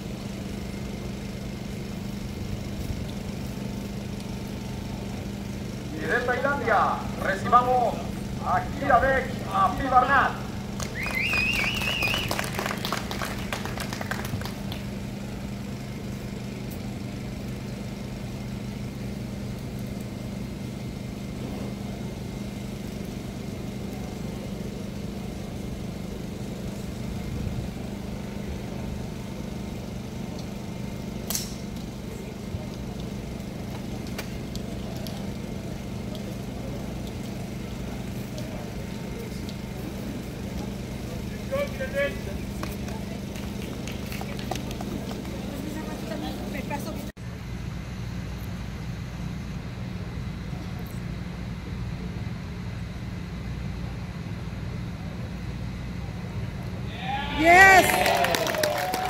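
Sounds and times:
low background hum: 0.0 - 59.0
spectators clapping: 10.8 - 15.0, 42.4 - 45.9, 57.4 - 59.0.

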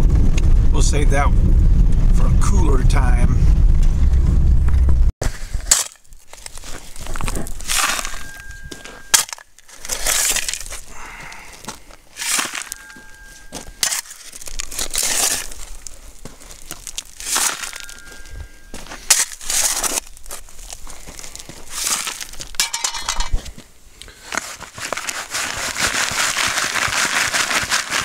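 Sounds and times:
shovel scraping gravelly ground: 5.2 - 28.0
loose stones rattling: 5.5 - 23.7, 24.3 - 28.0.

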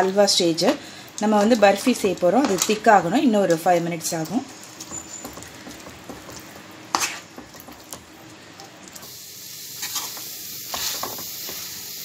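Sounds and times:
light sizzling: 0.0 - 12.0
spatula scraping and stirring: 1.4 - 8.2, 9.8 - 11.8
spatula knocking on pan: 4.8 - 6.4.

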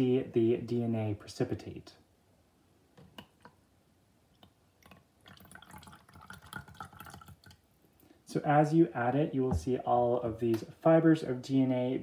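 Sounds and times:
liquid pouring into cup: 4.4 - 7.6.

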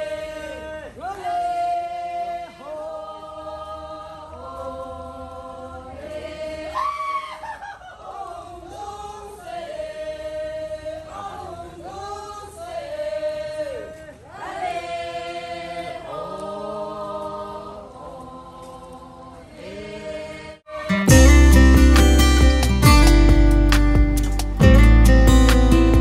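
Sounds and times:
group of voices chanting: 0.0 - 7.0, 8.0 - 21.1.

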